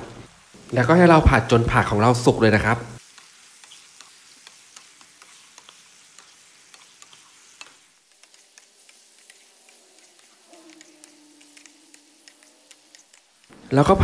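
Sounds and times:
food sizzling in a pan: 0:00.0 - 0:14.0
spatula clicking and scraping: 0:03.0 - 0:13.6.

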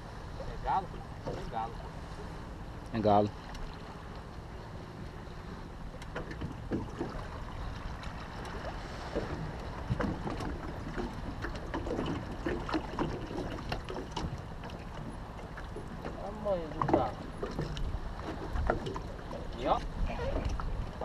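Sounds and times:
water rushing around boat: 0:00.0 - 0:21.0
wind: 0:00.0 - 0:21.0
knocks on boat: 0:06.1 - 0:07.3, 0:09.1 - 0:14.4, 0:15.8 - 0:20.7.

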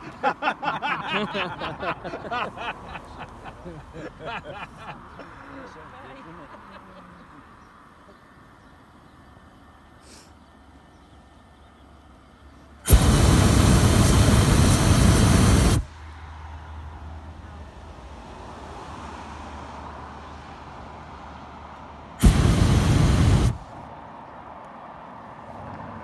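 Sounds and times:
propane burner blasts: 0:12.9 - 0:15.9, 0:22.2 - 0:23.7.

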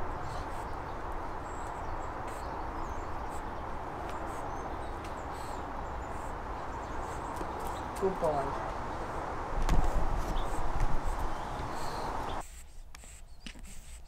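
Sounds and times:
outdoor background noise: 0:00.0 - 0:14.0
faint high bird chirps: 0:11.2 - 0:12.4.

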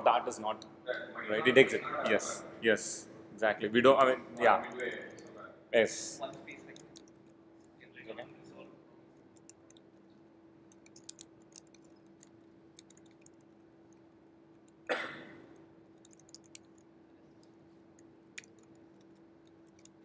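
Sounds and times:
steady low hum: 0:00.0 - 0:20.0
laptop keyboard clicking: 0:06.6 - 0:07.3, 0:09.3 - 0:09.9, 0:10.7 - 0:14.9, 0:15.5 - 0:20.0.

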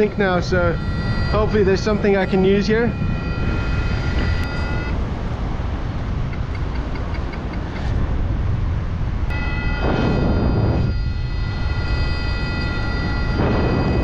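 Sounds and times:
steady electronic tone: 0:00.0 - 0:05.2, 0:09.3 - 0:14.0
wind rushing over microphone: 0:00.0 - 0:14.0.

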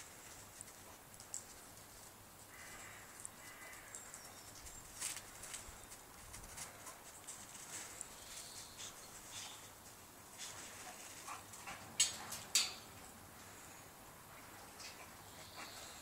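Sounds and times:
dog paws crunching through snow: 0:00.0 - 0:11.7.

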